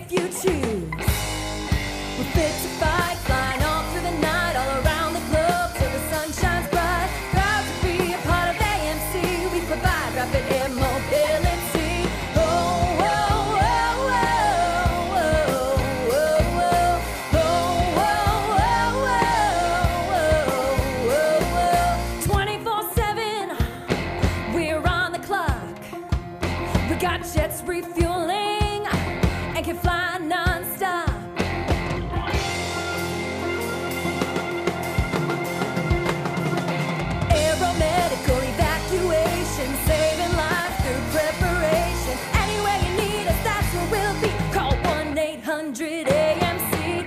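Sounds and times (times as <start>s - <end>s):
sung melody: 31.5s - 44.6s.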